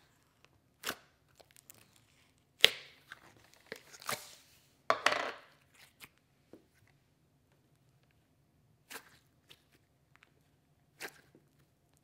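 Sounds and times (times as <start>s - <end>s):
slime squelching and crackling: 0.0s - 4.5s, 7.7s - 12.0s.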